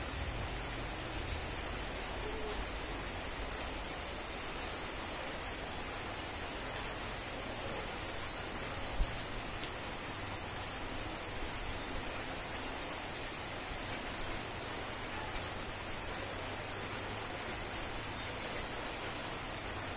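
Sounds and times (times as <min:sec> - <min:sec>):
rain hissing: 0:00.0 - 0:19.9
rain drop ticks: 0:00.4 - 0:04.8.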